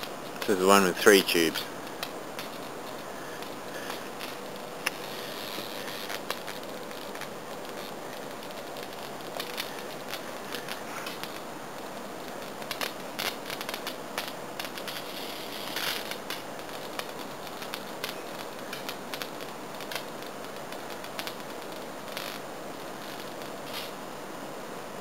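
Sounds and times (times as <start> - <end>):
bug zapper crackle: 0.0 - 24.0.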